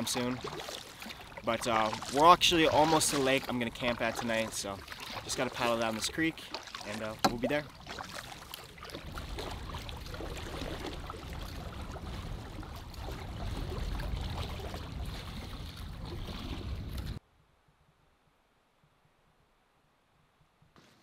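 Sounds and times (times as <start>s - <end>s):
water lapping along canoe hull: 0.0s - 17.2s
wind rumbling on microphone: 8.8s - 17.2s.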